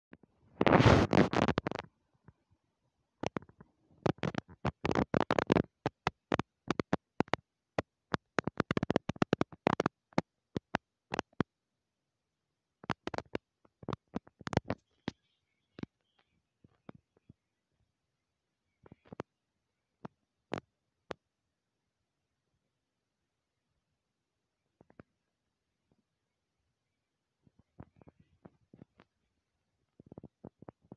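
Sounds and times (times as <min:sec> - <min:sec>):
sharp clicks and crackles: 0:00.1 - 0:02.4, 0:03.2 - 0:11.6, 0:12.8 - 0:17.4, 0:18.8 - 0:19.4, 0:20.0 - 0:21.3, 0:24.8 - 0:25.3.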